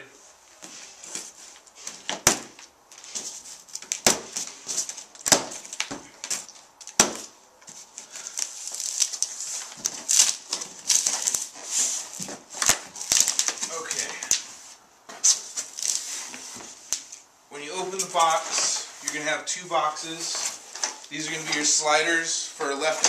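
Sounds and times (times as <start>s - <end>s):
plastic wrapping rustling: 0.2s - 19.2s, 19.8s - 23.0s
cardboard scraping and rustling: 0.5s - 16.9s.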